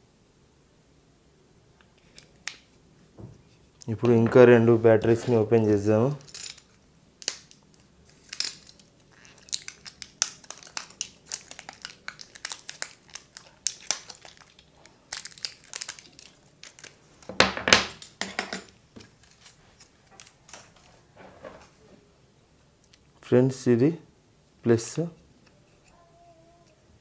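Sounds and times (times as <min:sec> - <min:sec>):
plastic packaging crinkling: 0:07.4 - 0:17.3.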